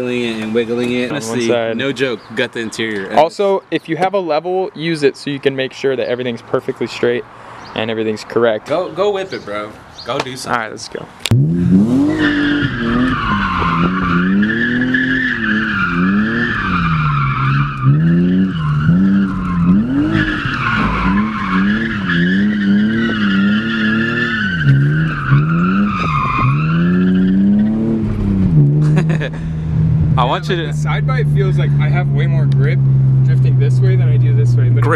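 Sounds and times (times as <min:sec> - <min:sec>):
tyres squealing: 0:06.3 - 0:27.9
car engine revving: 0:11.2 - 0:34.9.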